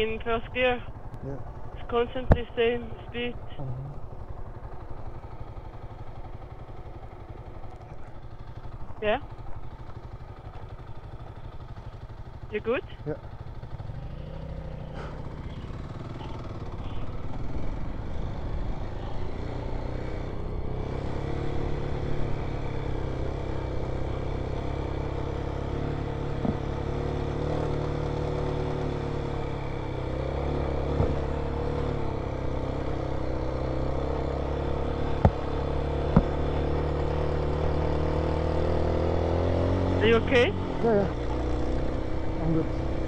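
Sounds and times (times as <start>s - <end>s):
motorcycle engine pulling uphill: 0.0s - 43.0s
sharp knocks: 26.4s - 26.7s.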